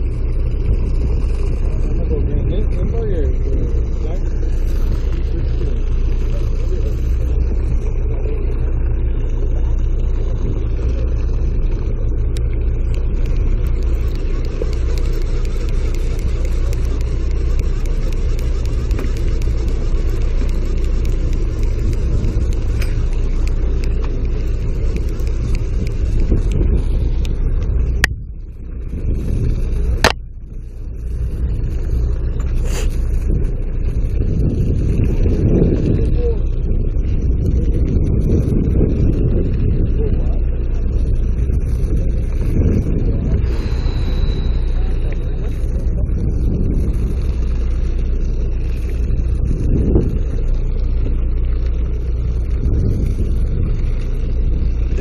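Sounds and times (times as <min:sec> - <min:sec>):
boat engine rumbling: 0:00.0 - 0:55.0
water noise: 0:00.0 - 0:55.0
wind: 0:00.0 - 0:55.0
sharp clicks: 0:12.3 - 0:26.6.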